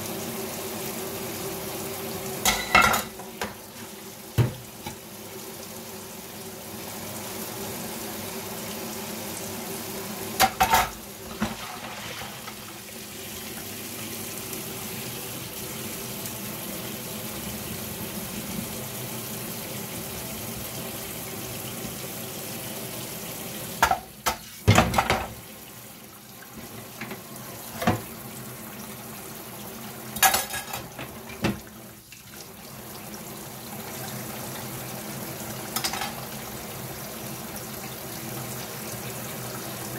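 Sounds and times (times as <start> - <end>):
kitchenware clattering: 2.4 - 3.6, 10.4 - 12.6, 23.8 - 25.4, 30.2 - 31.6, 35.8 - 36.2.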